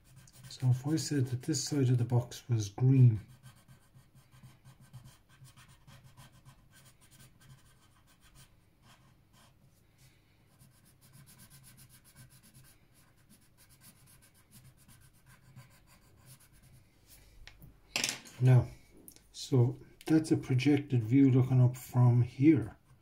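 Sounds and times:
pencil scratching on paper: 0.0s - 2.1s, 3.1s - 9.6s, 10.5s - 16.8s.

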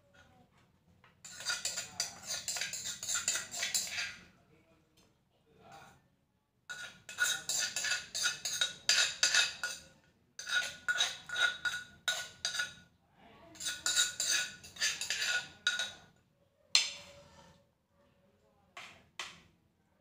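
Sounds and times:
metal spoon scraping clay mortar: 1.2s - 4.3s, 6.7s - 12.8s, 13.6s - 16.1s.

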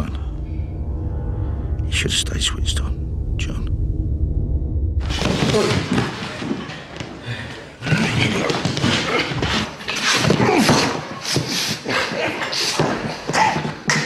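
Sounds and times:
men grunting: 5.3s - 6.3s, 7.3s - 14.0s.

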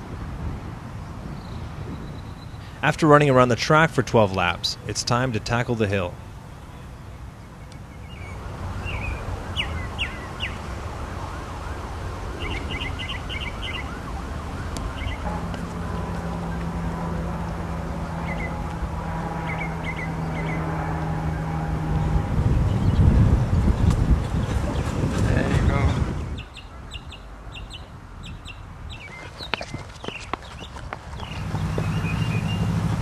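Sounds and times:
bird chirps: 6.6s - 10.8s, 12.4s - 14.0s, 14.8s - 16.8s, 17.9s - 18.6s, 19.4s - 20.6s, 26.3s - 32.9s
steady rushing noise: 8.3s - 26.4s, 29.1s - 33.0s
steady low hum with tones: 14.9s - 22.8s.

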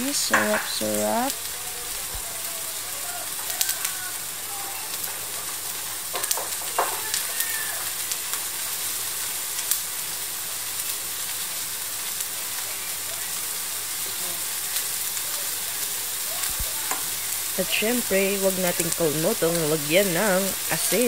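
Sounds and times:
chicken and onion sizzling in wok: 0.0s - 21.0s.

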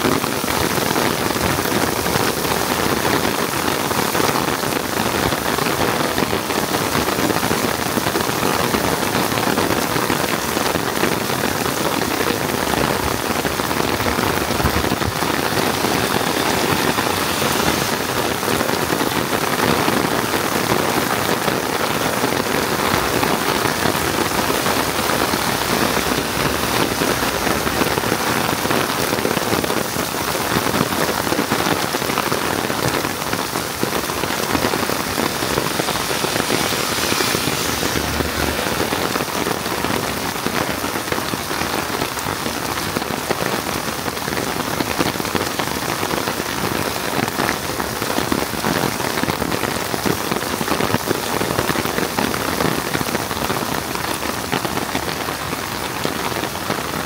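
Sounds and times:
heavy rain falling: 0.0s - 57.0s.

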